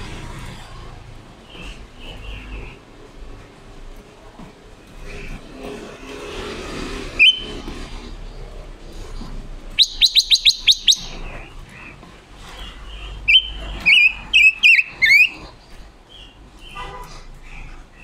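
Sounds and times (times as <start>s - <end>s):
bird singing: 7.2s - 7.6s, 9.7s - 16.9s.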